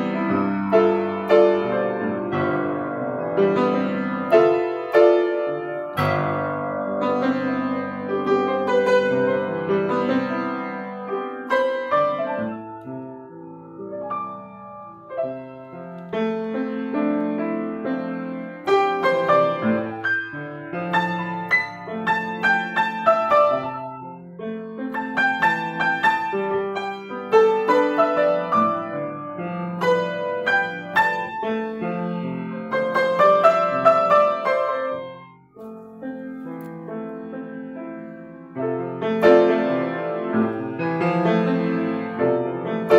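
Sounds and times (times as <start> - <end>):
grand piano slow melody: 0.0 - 42.9.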